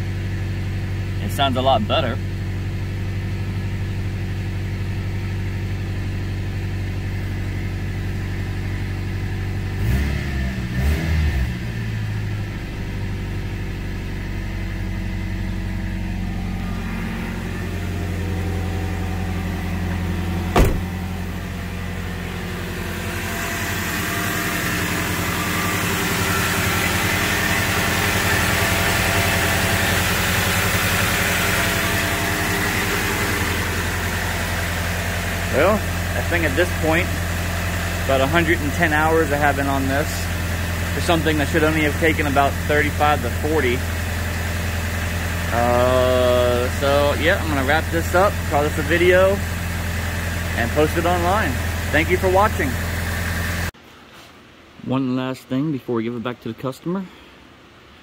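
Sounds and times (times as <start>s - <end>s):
car engine idling: 0.0s - 53.8s
sharp knock: 20.5s - 21.0s.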